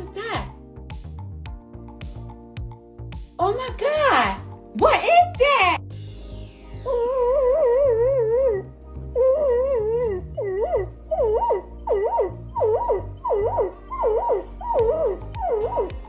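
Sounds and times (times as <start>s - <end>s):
dog howling: 6.9s - 16.0s.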